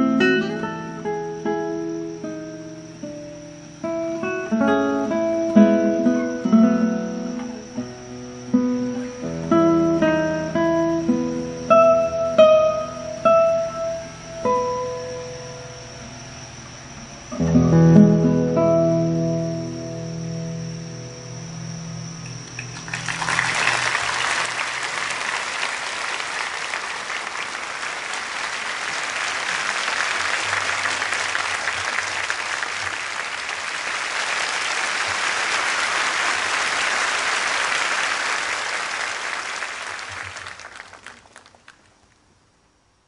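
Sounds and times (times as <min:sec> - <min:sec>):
classical guitar chord ringing: 0:00.0 - 0:16.2, 0:17.3 - 0:22.8
audience applause: 0:22.5 - 0:42.0.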